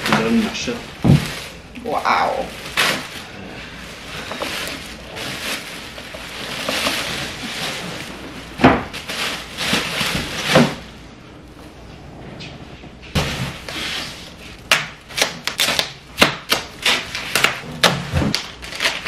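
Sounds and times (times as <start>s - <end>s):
plastic wrapping rustling: 0.0s - 11.0s, 13.1s - 19.0s.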